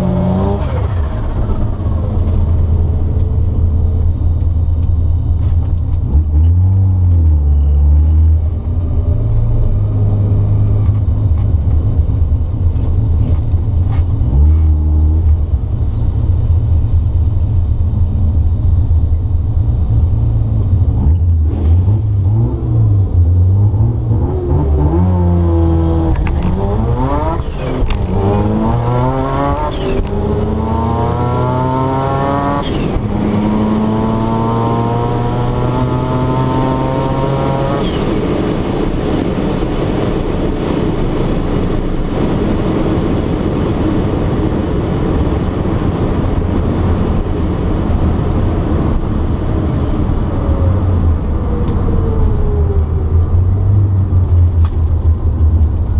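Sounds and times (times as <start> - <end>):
rotary engine at full throttle: 0.0 - 3.7, 20.8 - 54.8
road and wind noise: 0.0 - 55.9.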